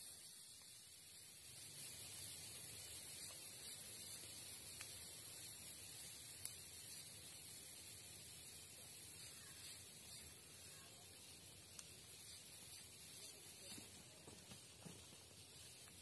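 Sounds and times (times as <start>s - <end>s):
forest insects droning: 0.0s - 16.0s
faint ticks: 0.4s - 0.8s, 3.1s - 7.1s, 11.7s - 14.7s.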